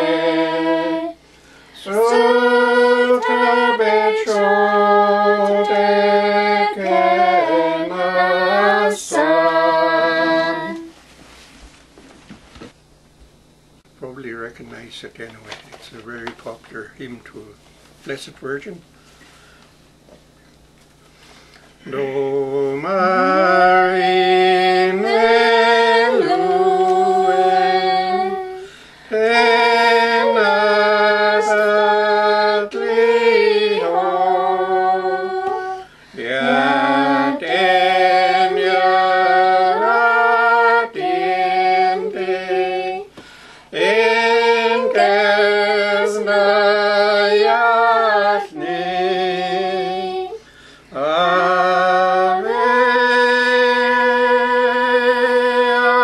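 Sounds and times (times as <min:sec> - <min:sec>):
person singing a hymn: 0:00.0 - 0:11.0, 0:21.8 - 0:56.0.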